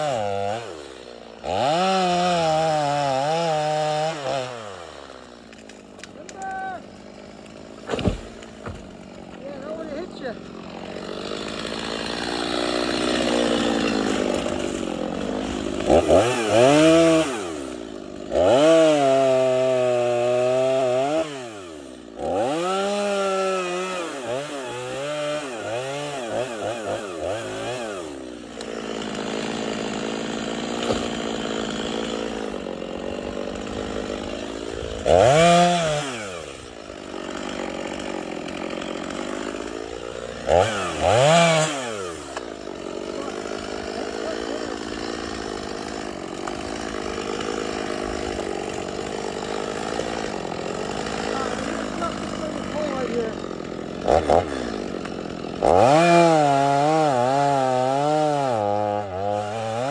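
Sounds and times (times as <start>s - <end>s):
chainsaw idling and revving: 0.0s - 59.9s.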